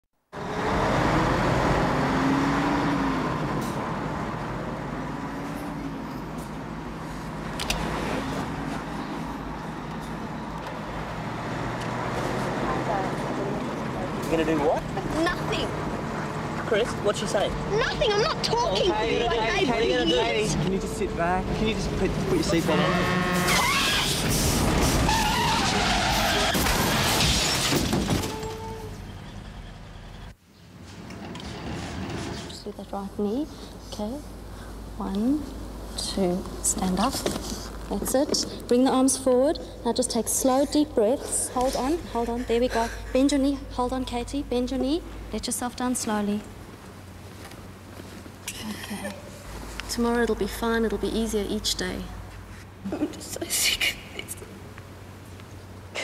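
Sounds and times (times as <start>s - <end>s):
car engine and tyre noise: 0.3s - 38.7s
tyres skidding with squeal: 22.4s - 30.3s
loud car crash: 23.3s - 28.7s.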